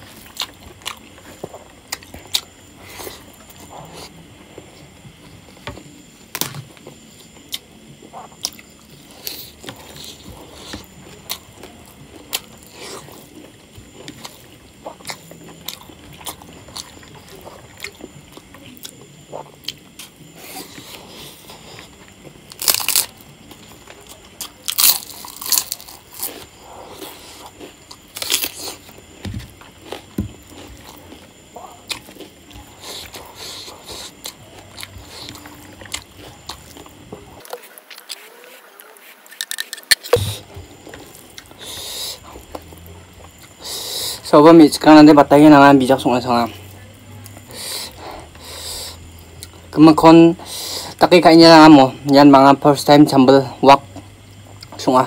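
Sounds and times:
chewing: 0:07.2 - 0:44.3
crunchy bites: 0:22.5 - 0:43.8.

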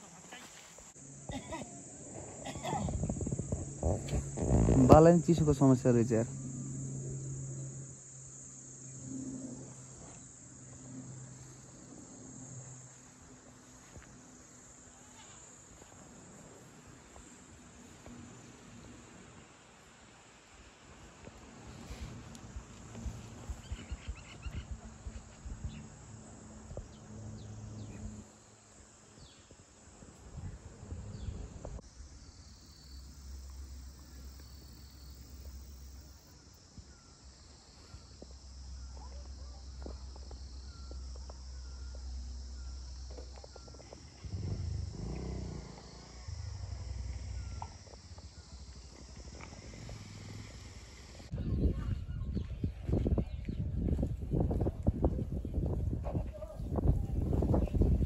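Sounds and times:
insects buzzing: 0:00.0 - 0:51.4
low rumble: 0:44.0 - 0:51.5.

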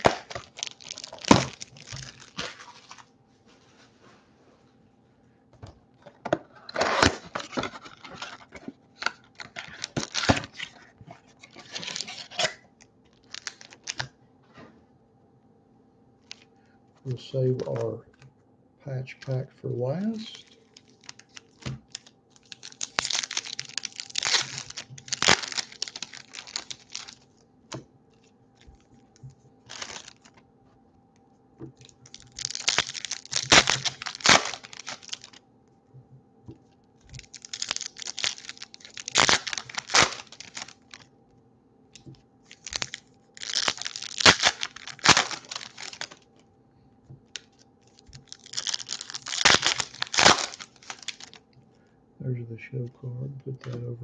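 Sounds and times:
foil wrappers tearing and crinkling: 0:00.0 - 0:03.1, 0:06.5 - 0:14.1, 0:16.2 - 0:16.5, 0:20.0 - 0:27.4, 0:29.6 - 0:30.4, 0:31.8 - 0:35.4, 0:37.1 - 0:41.1, 0:42.5 - 0:46.4, 0:47.3 - 0:51.4.

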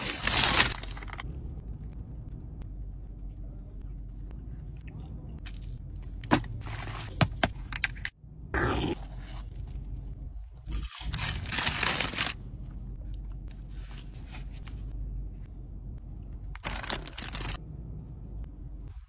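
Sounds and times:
paper wrappers crinkling and tearing: 0:00.0 - 0:01.2, 0:10.7 - 0:12.4, 0:16.6 - 0:17.6
steady low hum: 0:00.0 - 0:19.0.

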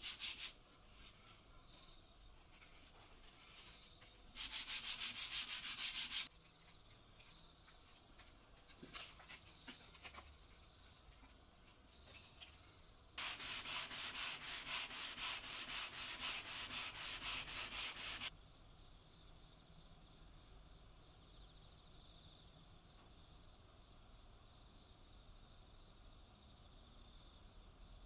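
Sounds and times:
sandpaper rasping on wood: 0:00.0 - 0:00.6, 0:04.4 - 0:06.3, 0:13.2 - 0:18.3.

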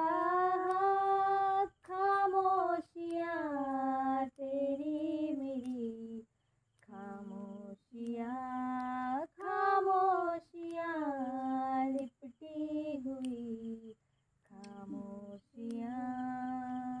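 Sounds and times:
woman humming a melody: 0:06.8 - 0:17.0.

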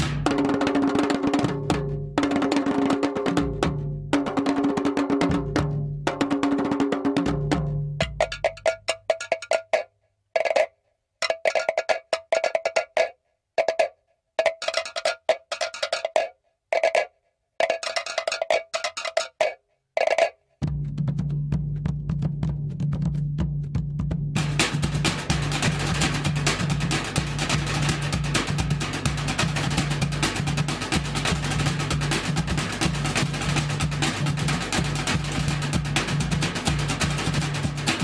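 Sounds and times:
deep drum: 0:00.0 - 0:02.4, 0:20.6 - 0:38.0
fast drumming: 0:00.0 - 0:38.0
slit drums knocking: 0:00.0 - 0:38.0.

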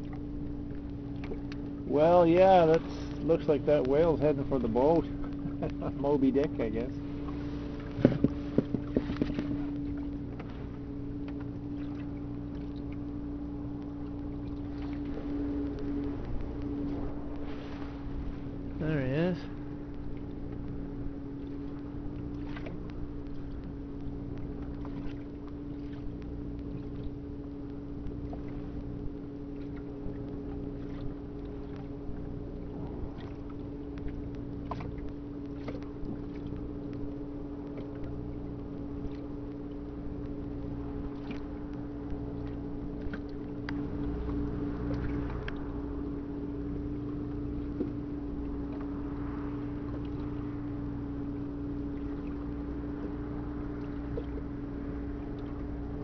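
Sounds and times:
boat engine humming: 0:00.0 - 0:56.0
light knocks: 0:07.8 - 0:09.6.

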